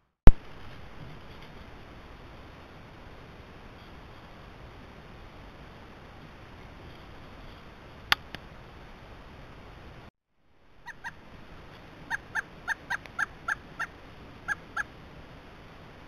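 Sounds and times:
woodpecker calling: 0:10.8 - 0:11.3, 0:12.0 - 0:14.9.

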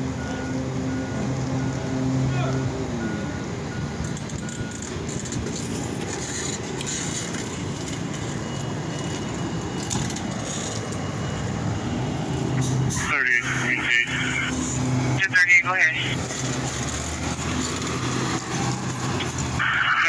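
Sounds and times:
fire engine running: 0:00.0 - 0:20.0
bicycle rolling over rough concrete: 0:04.4 - 0:11.0.

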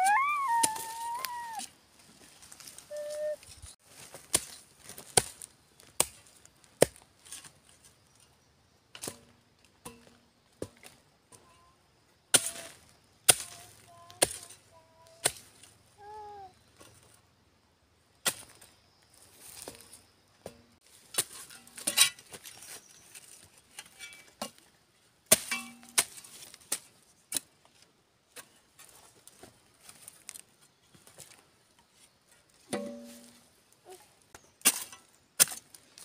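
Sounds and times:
hoe chopping into stony soil: 0:25.3 - 0:27.5, 0:34.6 - 0:36.0.

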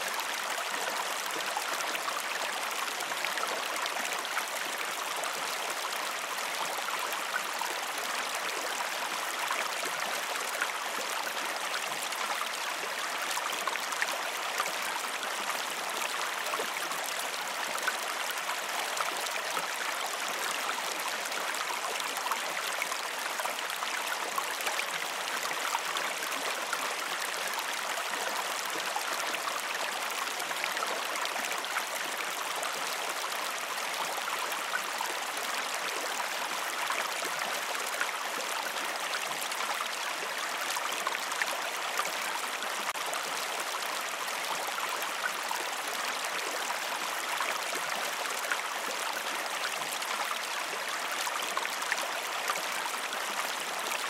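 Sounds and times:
creek running over rocks: 0:00.0 - 0:54.0.

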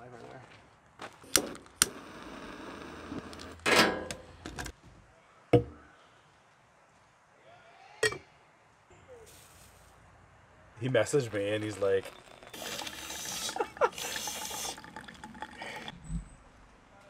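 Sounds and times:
camp stove burner hissing: 0:01.3 - 0:03.5, 0:12.4 - 0:14.9
metal mug set on wooden table: 0:08.0 - 0:08.3.

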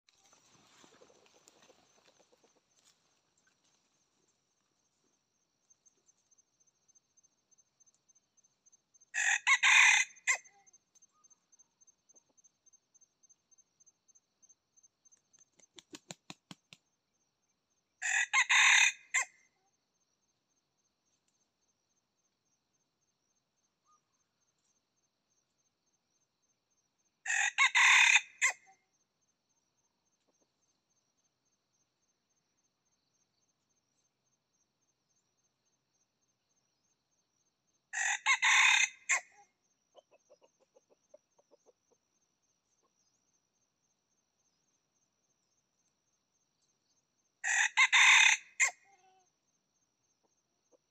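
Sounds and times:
rooster crowing: 0:09.2 - 0:10.4, 0:18.0 - 0:19.3, 0:27.3 - 0:28.6, 0:38.0 - 0:39.2, 0:47.4 - 0:48.8.

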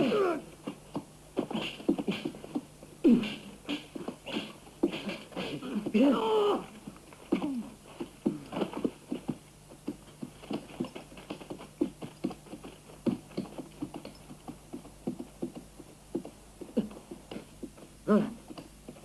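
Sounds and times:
horse hooves on forest ground: 0:06.8 - 0:19.0.

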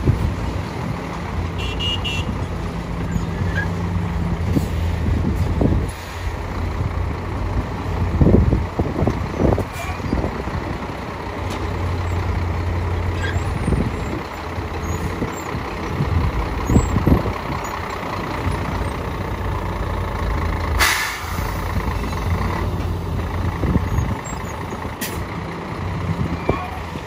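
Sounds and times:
diesel truck engine running low: 0:00.0 - 0:27.0
air brake hiss: 0:20.8 - 0:21.6.

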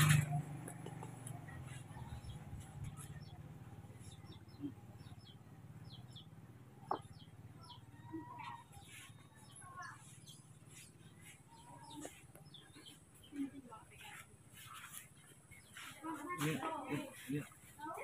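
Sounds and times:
small animals chirping: 0:01.5 - 0:13.4.

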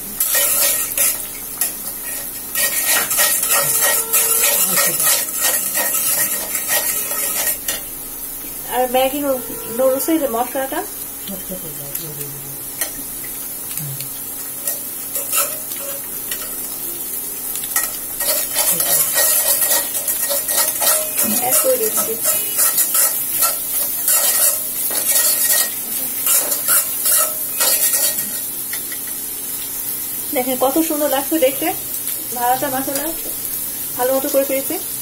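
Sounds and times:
frying sizzle: 0:00.0 - 0:35.0
metal spatula scraping wok: 0:00.2 - 0:07.9, 0:08.7 - 0:10.7, 0:14.6 - 0:16.6, 0:17.8 - 0:29.2.

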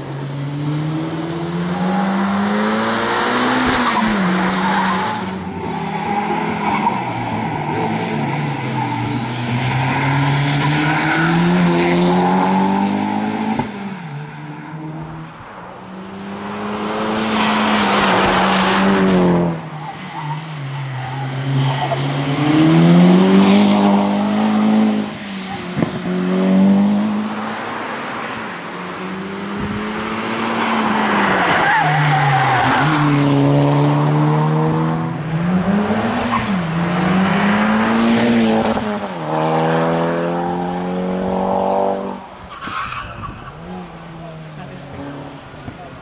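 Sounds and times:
car engine revving hard: 0:28.9 - 0:42.2.

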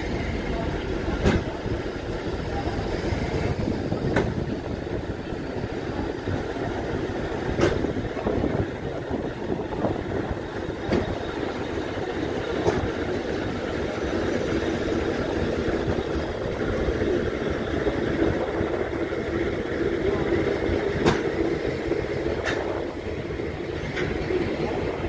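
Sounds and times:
diesel locomotive rumble: 0:00.0 - 0:25.0.

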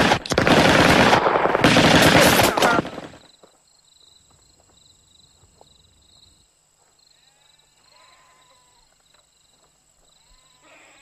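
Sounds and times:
rapid gunfire: 0:00.0 - 0:03.3.

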